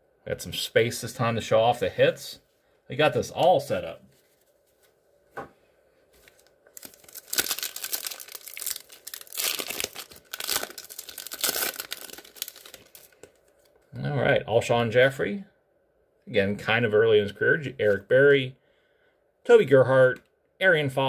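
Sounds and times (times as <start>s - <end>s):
wrapper tearing and crinkling: 6.2s - 13.6s.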